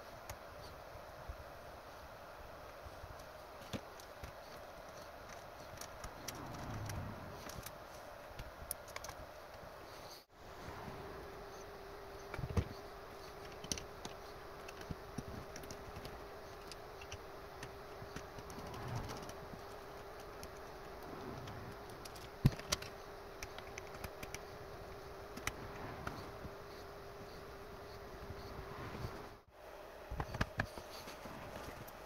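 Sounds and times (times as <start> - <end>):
steady hum: 0.0 - 32.0
plastic parts clicking and knocking: 8.4 - 9.2, 13.4 - 20.8, 21.4 - 24.5.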